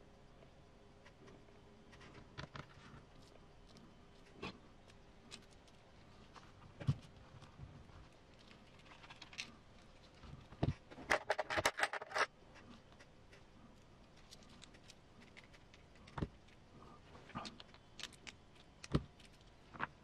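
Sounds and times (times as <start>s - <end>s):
small plastic parts clicking: 11.1s - 12.3s, 17.4s - 20.0s.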